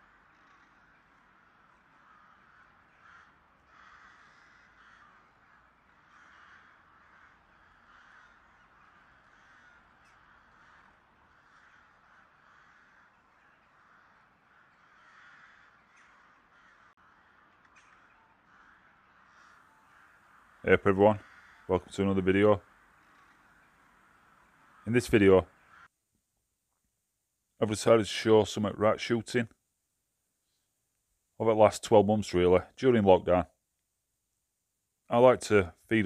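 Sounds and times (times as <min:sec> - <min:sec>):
faint crows cawing: 0:00.0 - 0:26.6.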